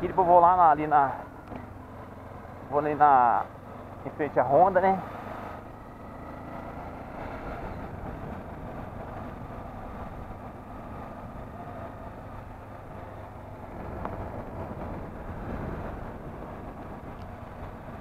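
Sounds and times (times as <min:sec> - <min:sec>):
motorcycle engine running: 0:00.0 - 0:18.0
wind rumbling on microphone: 0:05.6 - 0:18.0.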